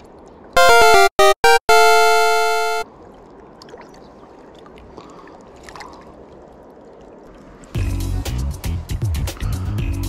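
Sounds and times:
electronic chime: 0.6s - 2.8s.

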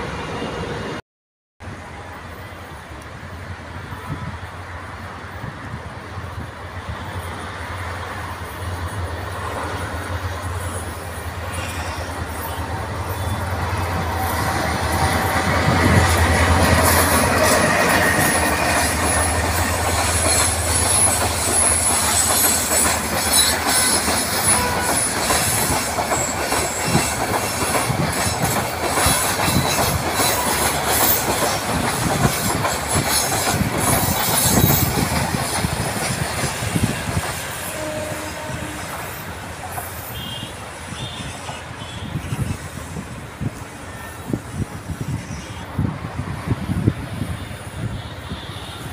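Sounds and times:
high wheel squeal: 10.4s - 16.2s, 16.8s - 31.6s, 32.3s - 35.6s.

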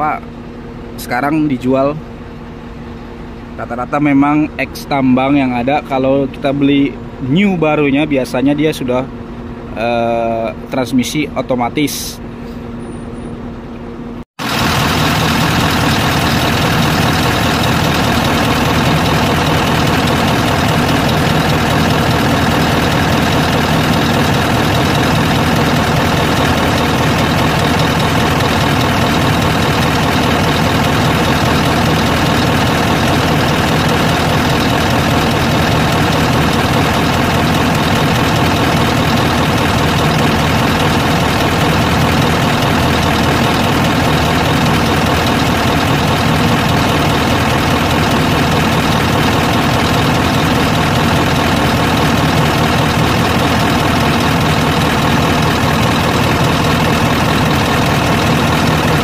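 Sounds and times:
diesel engine idling: 14.4s - 59.0s.

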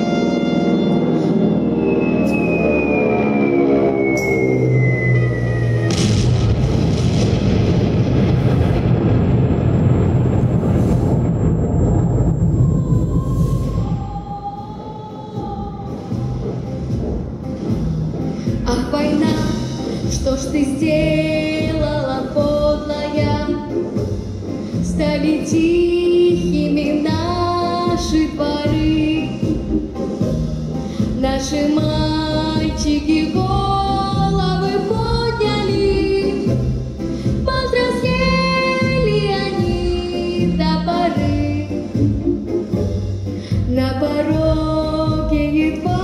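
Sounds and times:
instrumental accompaniment with bass: 0.0s - 7.6s, 14.1s - 46.0s
woman singing: 12.7s - 16.7s, 18.6s - 23.8s, 24.8s - 29.7s, 31.0s - 36.7s, 37.4s - 42.0s, 43.5s - 46.0s.

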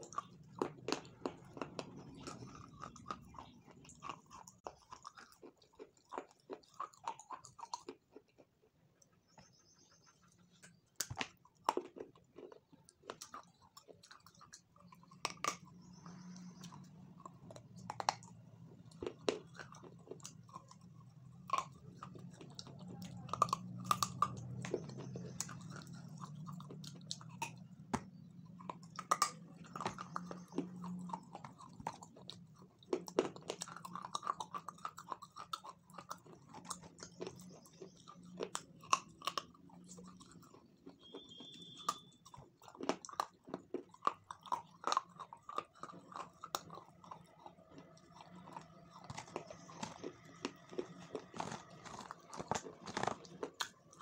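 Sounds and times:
person chewing: 0.0s - 9.1s, 10.0s - 54.0s.

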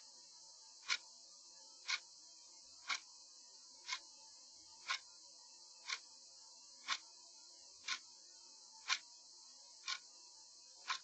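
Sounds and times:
clock-like ticking: 0.8s - 1.0s, 2.8s - 3.1s, 3.8s - 4.0s, 4.8s - 5.1s, 5.8s - 6.1s, 6.8s - 7.0s, 7.8s - 8.0s, 8.8s - 9.0s, 9.8s - 10.1s.

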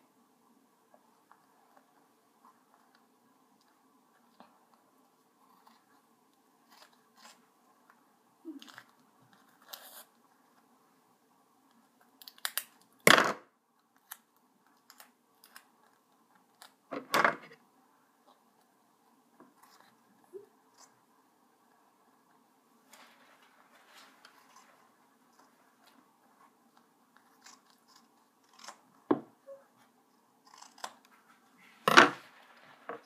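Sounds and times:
scissors cutting material: 27.2s - 28.9s, 30.4s - 31.2s.

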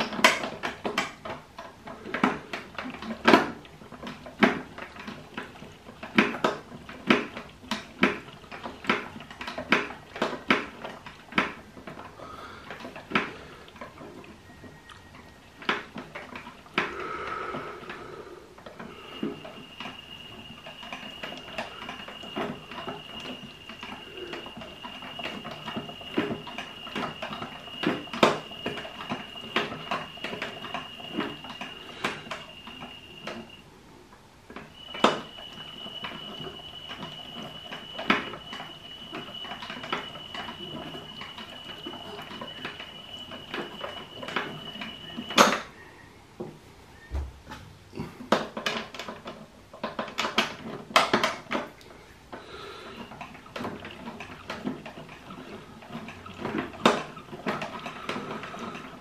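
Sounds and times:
toy washing machine drum rattling: 0.0s - 14.8s, 18.6s - 33.6s, 34.6s - 45.7s, 53.1s - 59.0s
high-pitched whine: 17.9s - 33.7s, 34.5s - 45.8s.

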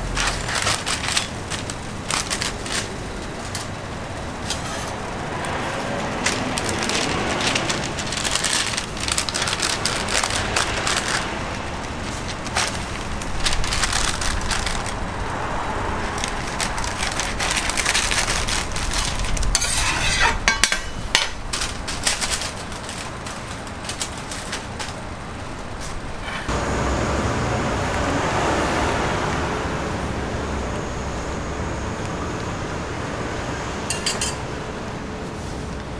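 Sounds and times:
paper wrapper crinkling: 0.0s - 26.5s
metal spatula scraping griddle: 19.5s - 21.4s, 25.8s - 26.5s.

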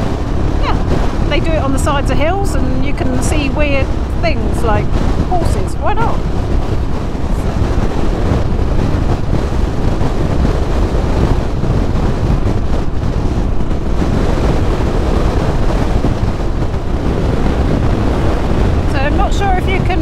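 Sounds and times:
motorcycle engine rumble: 0.0s - 20.0s
wind rush over microphone: 0.0s - 20.0s.

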